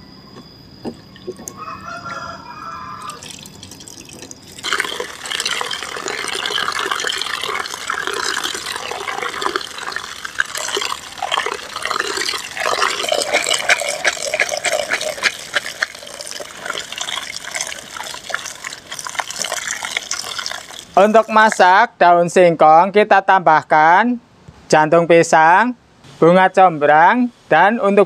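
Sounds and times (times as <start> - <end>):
water pouring and splashing: 3.1 - 21.7
hands sloshing food in water: 3.2 - 21.6.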